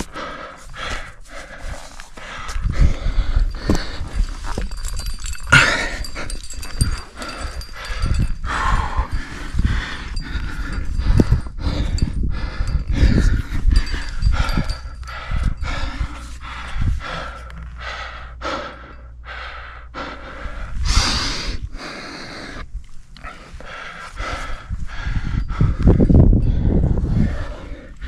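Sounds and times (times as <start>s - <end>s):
person breathing hard: 0.0s - 28.0s
rush of breath or wind: 0.0s - 28.0s
knocks of climbing gear: 2.5s - 7.8s.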